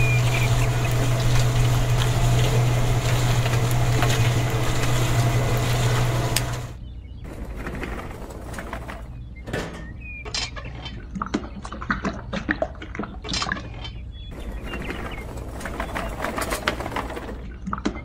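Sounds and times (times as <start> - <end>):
wet cement pouring: 0.0 - 6.8
steady low hum: 0.0 - 11.6
toy cement mixer rattling: 14.6 - 17.6.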